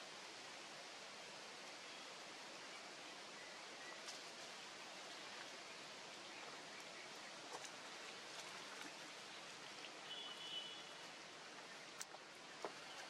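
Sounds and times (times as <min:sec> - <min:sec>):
steady hiss: 0:00.0 - 0:08.3
light ticks and rustles: 0:03.9 - 0:13.0.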